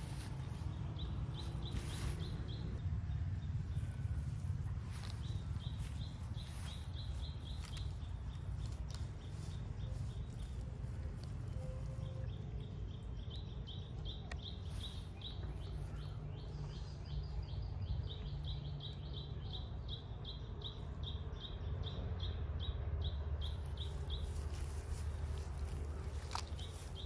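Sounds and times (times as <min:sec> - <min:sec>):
low rumble: 0:00.0 - 0:18.9.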